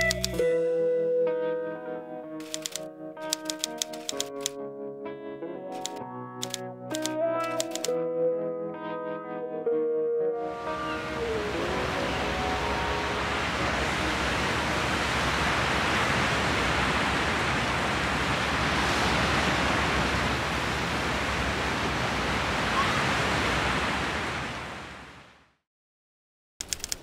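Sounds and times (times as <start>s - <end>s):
waves breaking on beach: 10.7s - 25.4s.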